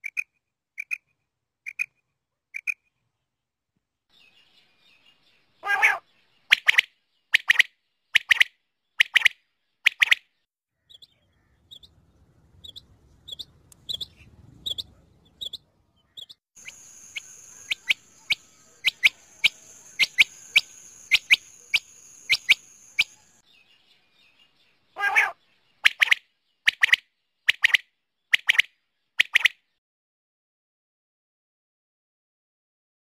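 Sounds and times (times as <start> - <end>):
quail calling: 5.6 - 9.3, 12.6 - 23.3, 25.0 - 27.8
steady high hiss: 16.6 - 23.4.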